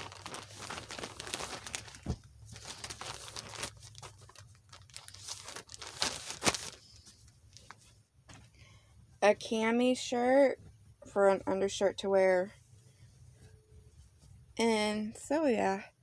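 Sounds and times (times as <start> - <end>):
plastic bag crinkling: 0.0 - 7.8.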